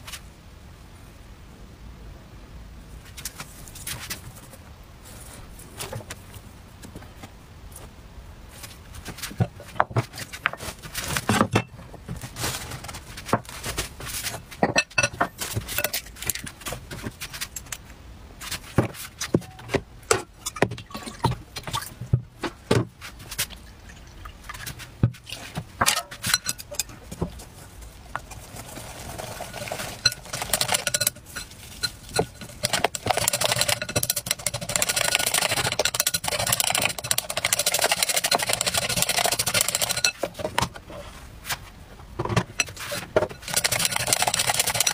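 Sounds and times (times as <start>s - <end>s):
glass bowl and dishes clinking: 14.6s - 16.0s, 25.9s - 26.9s, 29.5s - 33.0s
chopsticks beating batter in bowl: 28.1s - 40.5s, 42.6s - 44.9s.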